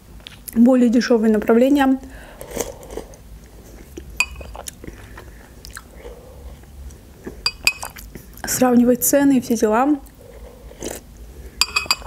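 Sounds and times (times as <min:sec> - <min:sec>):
quiet chewing: 0:02.3 - 0:08.6, 0:10.0 - 0:11.1.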